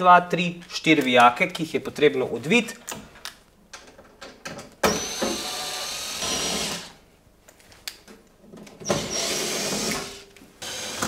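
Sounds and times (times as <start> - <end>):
cordless drill running: 4.9 - 7.0, 8.9 - 11.0.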